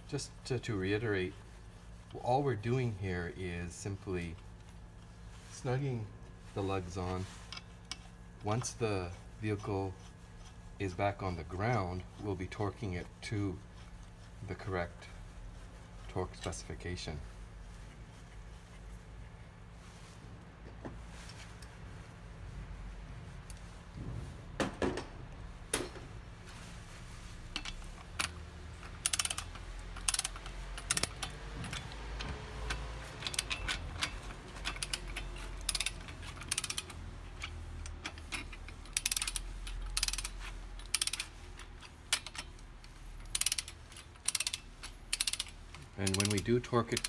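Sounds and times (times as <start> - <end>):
ratchet wrench clicking: 27.5 - 47.0.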